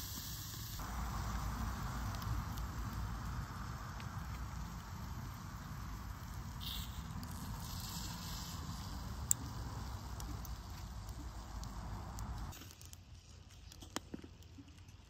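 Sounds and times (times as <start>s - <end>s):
clams sizzling on a grill: 0.0s - 13.1s
steady low rumble: 0.8s - 7.7s.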